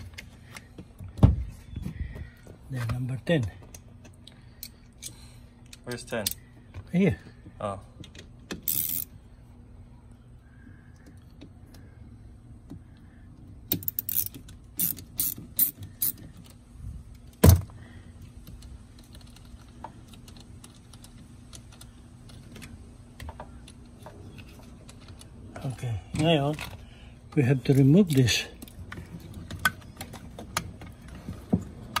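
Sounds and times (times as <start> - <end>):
socket wrench clicking on metal: 8.6 - 9.1, 13.7 - 16.2.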